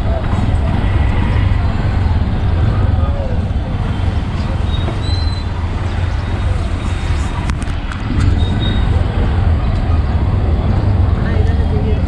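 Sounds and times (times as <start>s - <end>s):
indistinct voices: 0.0s - 12.0s
traffic rumble: 0.0s - 12.0s.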